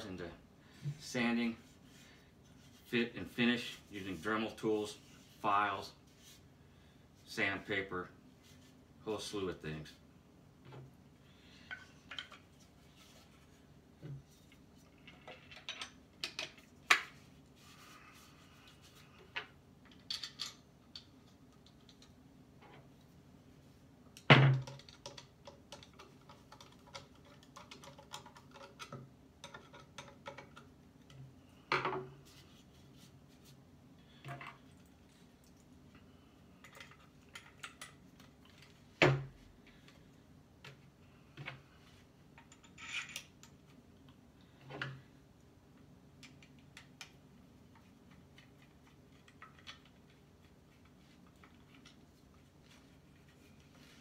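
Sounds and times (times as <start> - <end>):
tools and parts clicking: 19.8 - 22.2, 24.2 - 30.7, 42.4 - 43.7.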